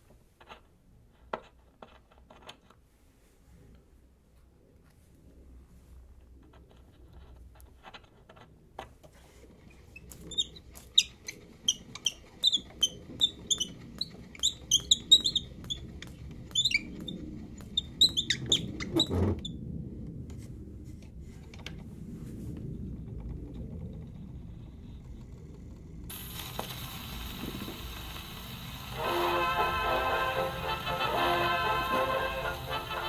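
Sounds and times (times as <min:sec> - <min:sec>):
turntable humming: 0:09.7 - 0:19.2, 0:23.4 - 0:33.0.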